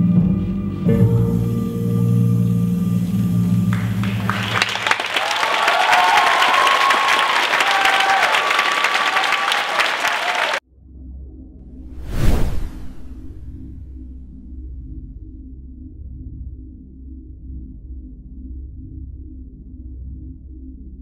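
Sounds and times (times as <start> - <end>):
performance music held low note: 0.0 - 5.3
audience applause and cheering: 3.7 - 10.6.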